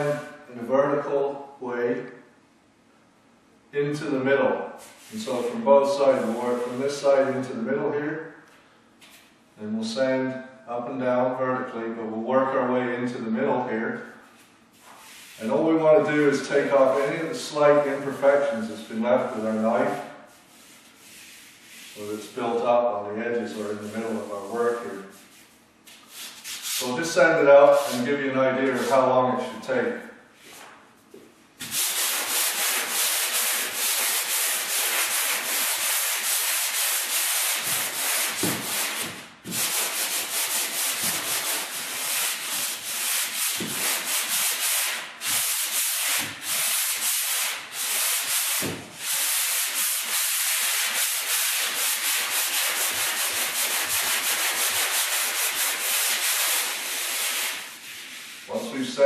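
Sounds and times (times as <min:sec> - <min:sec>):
sandpaper sanding a wall: 0:20.3 - 0:22.4, 0:23.5 - 0:27.0, 0:31.6 - 0:58.8.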